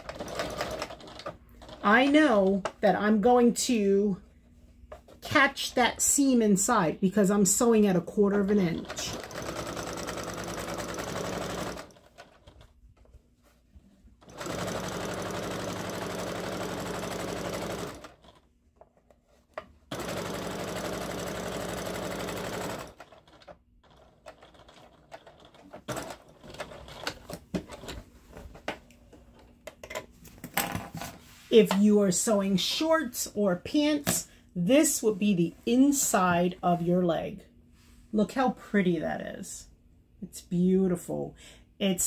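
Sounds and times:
sewing machine stitching: 0.0s - 2.1s, 8.7s - 12.6s, 14.2s - 18.4s, 19.9s - 28.0s.

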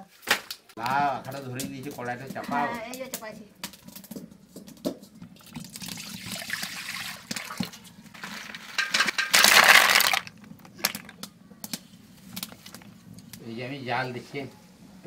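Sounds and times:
snail shells clattering and splashing: 5.5s - 11.3s.

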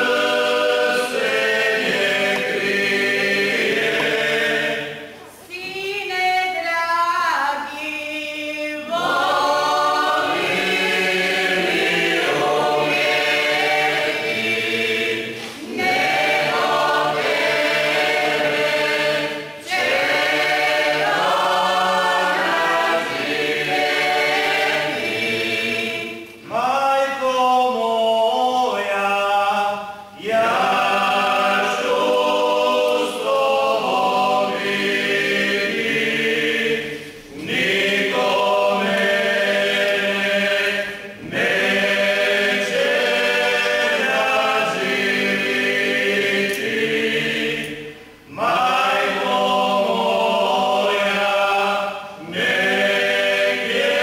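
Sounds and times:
choir singing unaccompanied: 0.0s - 54.0s.

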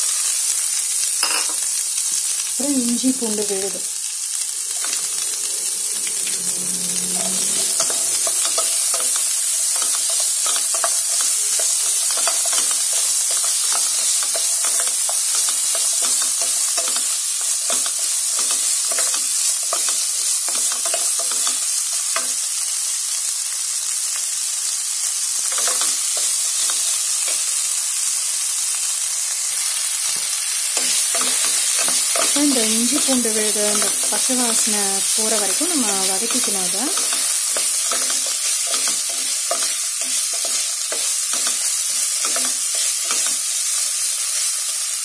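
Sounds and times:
onions sizzling in oil: 0.0s - 45.0s.

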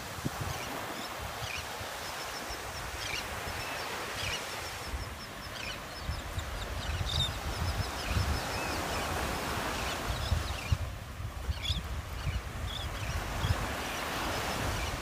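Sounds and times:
small surf washing: 0.0s - 5.8s
wind rumbling on microphone: 0.0s - 15.0s
seabirds calling: 0.3s - 15.0s.

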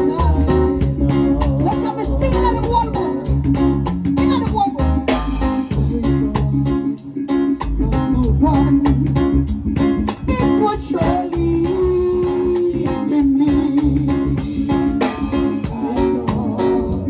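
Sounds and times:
bass: 0.0s - 17.0s
held melody line: 0.0s - 17.0s
plucked guitar: 0.0s - 17.0s
steady drum beat: 0.0s - 17.0s.

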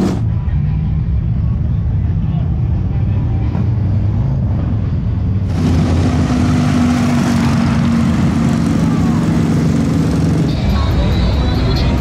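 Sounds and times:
motorcycle engines rumbling: 0.0s - 12.0s.

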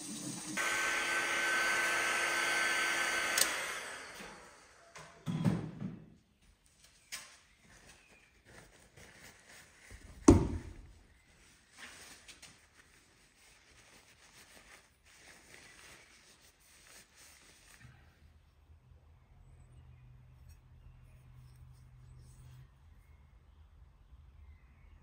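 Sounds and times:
tissue rustling: 7.6s - 18.2s.

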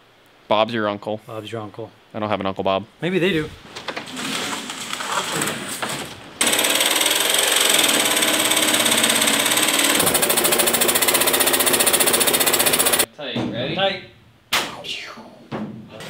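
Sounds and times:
jigsaw cutting sheet metal: 6.4s - 13.1s.

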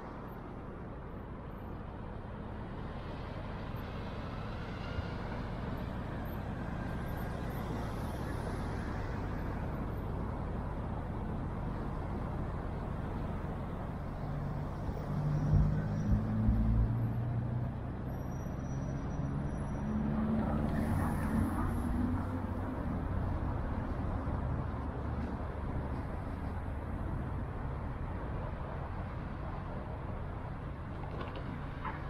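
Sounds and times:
engine rumble and road noise: 0.0s - 32.0s
vehicles passing: 0.0s - 32.0s.

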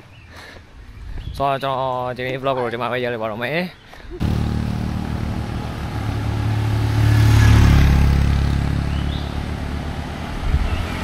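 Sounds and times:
vehicle engine running: 4.2s - 11.0s.

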